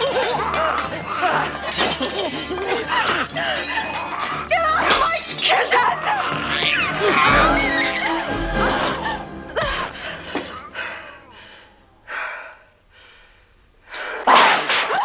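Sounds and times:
film soundtrack music: 0:00.0 - 0:13.8
high gliding creature squeals: 0:06.1 - 0:09.2.

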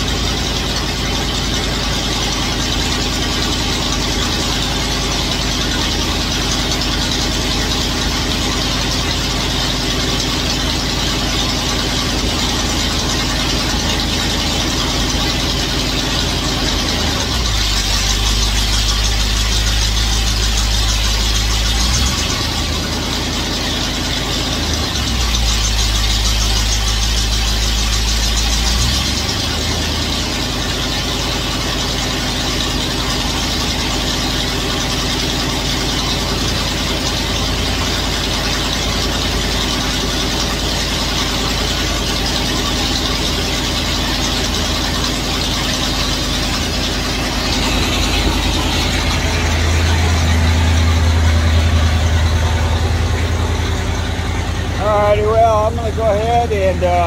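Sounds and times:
car engine running: 0:00.0 - 0:57.0.

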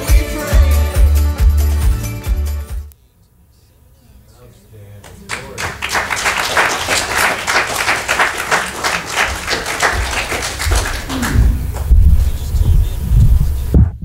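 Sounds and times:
congregation applauding: 0:05.0 - 0:11.9.

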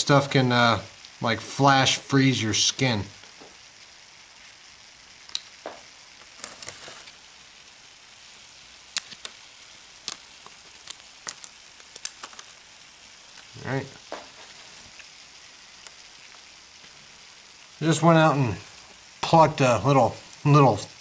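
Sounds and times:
dry ice bubbling hiss: 0:00.0 - 0:21.0
frozen leaf crackling and breaking: 0:06.1 - 0:07.3, 0:08.9 - 0:09.4, 0:10.0 - 0:15.1.

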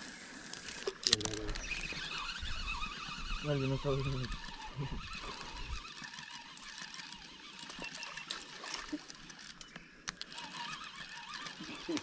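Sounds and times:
water trickling and lapping: 0:00.0 - 0:12.0.

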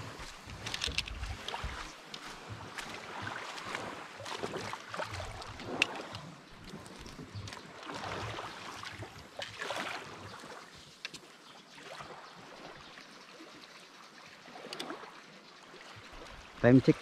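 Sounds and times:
water lapping against boat hull: 0:00.0 - 0:17.0.

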